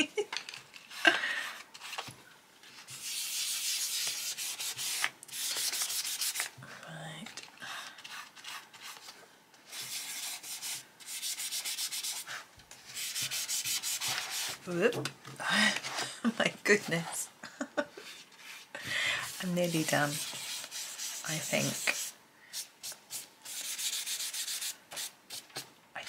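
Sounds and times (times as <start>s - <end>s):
cotton pad rubbing on paper: 12.9s - 14.6s, 19.3s - 22.1s.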